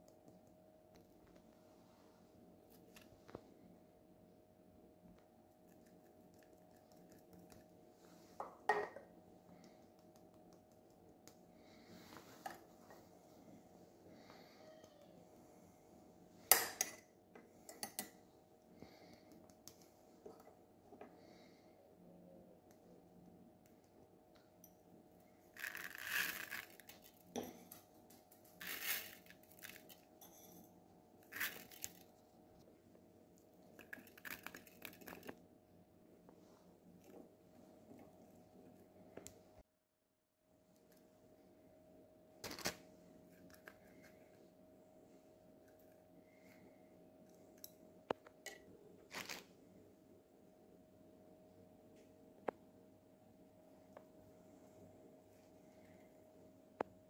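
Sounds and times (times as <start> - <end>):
rice grains pouring: 25.6 - 27.0, 28.6 - 29.9.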